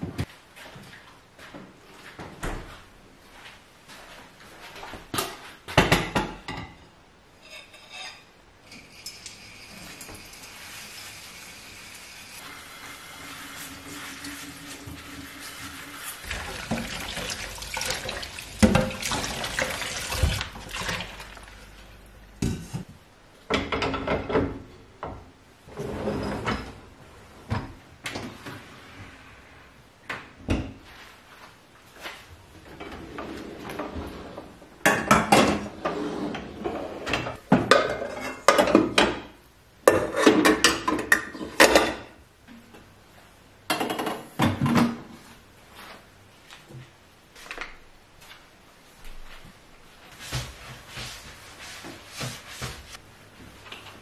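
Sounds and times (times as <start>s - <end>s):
tap water running: 9.2s - 22.0s
crockery and pans clattering: 37.5s - 39.3s.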